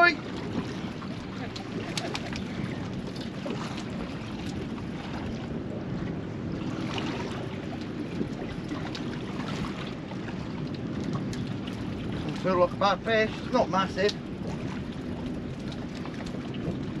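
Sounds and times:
water slapping against boat hull: 0.0s - 17.0s
wind buffeting microphone: 0.0s - 17.0s.

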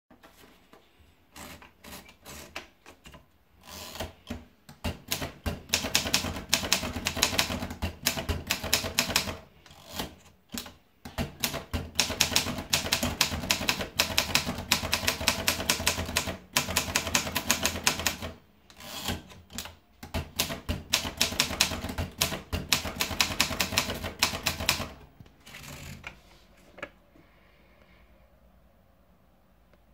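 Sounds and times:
fast typewriter typing: 3.7s - 26.0s
typewriter clicks: 4.0s - 9.4s, 10.0s - 18.4s, 19.0s - 25.0s.

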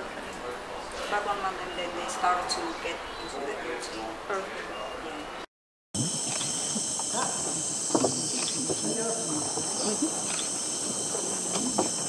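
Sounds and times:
insects chorus: 6.0s - 12.0s.

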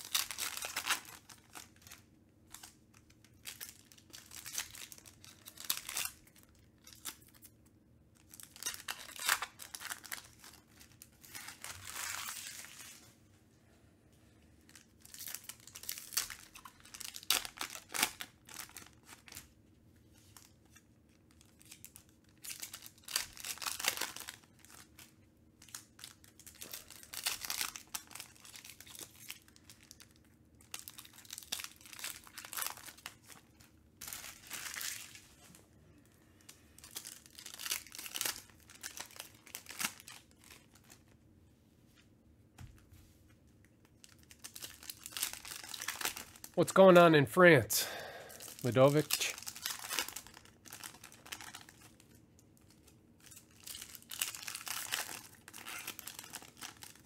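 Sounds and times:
foil wrappers tearing and crinkling: 0.0s - 7.5s, 8.2s - 13.0s, 14.7s - 19.5s, 20.3s - 35.4s, 36.4s - 41.0s, 43.9s - 46.6s, 48.4s - 57.0s.

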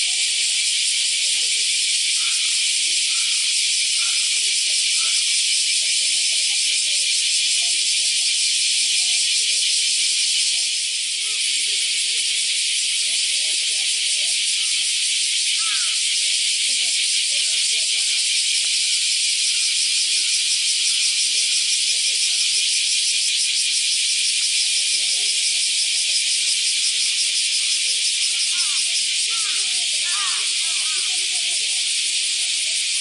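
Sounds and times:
loud high-pitched hiss: 8.6s - 33.0s.

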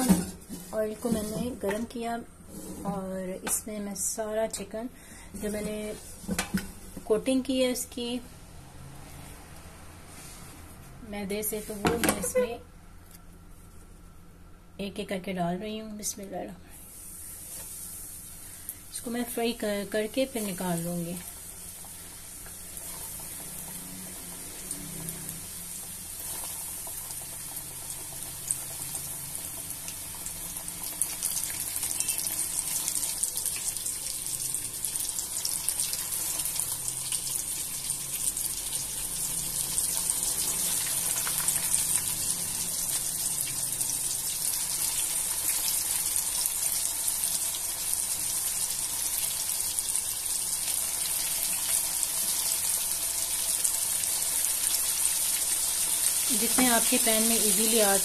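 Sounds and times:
chicken sizzling in hot oil: 16.8s - 18.9s, 19.7s - 58.0s.

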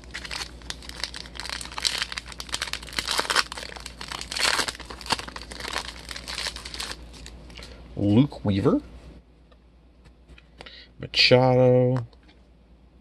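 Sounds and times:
foil wrapper crinkling and tearing: 0.0s - 7.7s.

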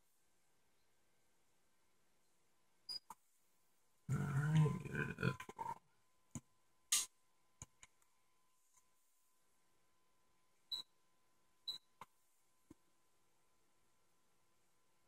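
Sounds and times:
person's low wordless vocal sound: 4.1s - 5.8s.

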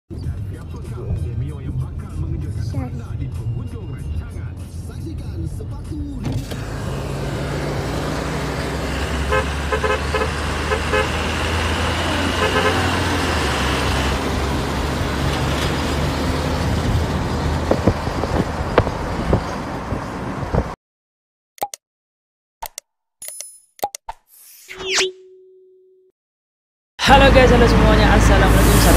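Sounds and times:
diesel truck engine passing: 0.2s - 20.8s, 27.0s - 28.9s
musical air horn notes: 9.3s - 13.2s.

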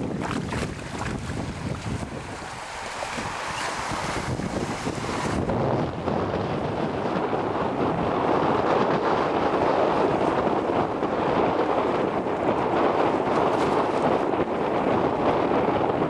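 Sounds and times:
rushing water: 0.0s - 8.2s
wind buffeting microphone: 0.0s - 16.0s.

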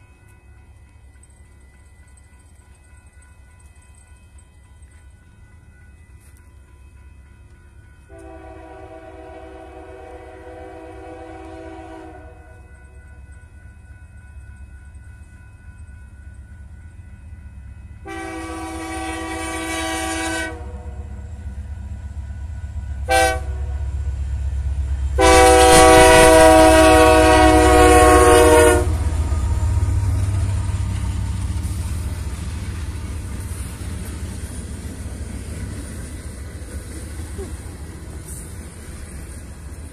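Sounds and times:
diesel locomotives rumbling: 0.0s - 39.9s
train air horn blasts: 8.1s - 12.6s, 18.0s - 21.2s, 23.0s - 24.0s, 25.2s - 29.3s.

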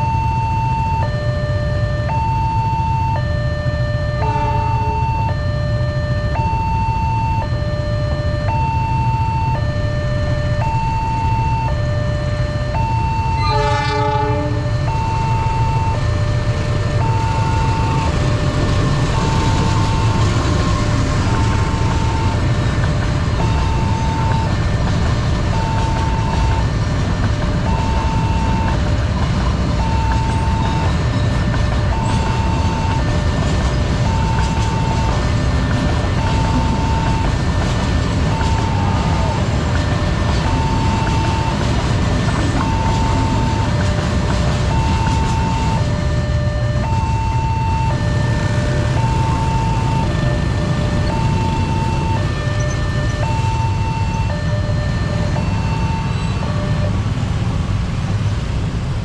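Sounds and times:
two-tone crossing alarm: 0.0s - 58.0s
train rumbling: 0.0s - 59.0s
train horn blast: 4.2s - 5.0s, 13.4s - 15.0s
wheels rattling on rails: 12.8s - 59.0s.

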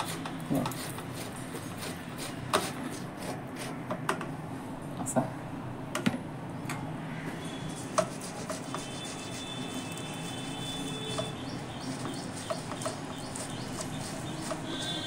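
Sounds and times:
potato rubbed on metal grater: 0.0s - 3.8s, 7.7s - 15.0s.

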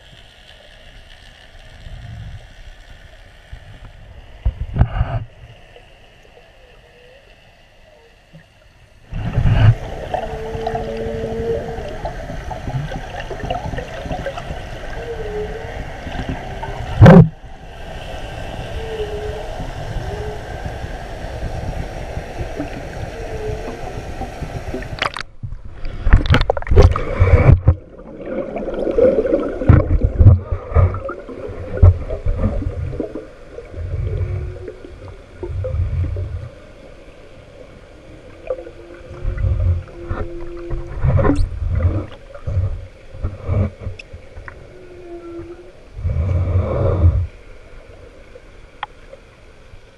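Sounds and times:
underwater rushing water hiss: 0.0s - 49.9s
water gurgling and bubbling: 9.0s - 47.4s.

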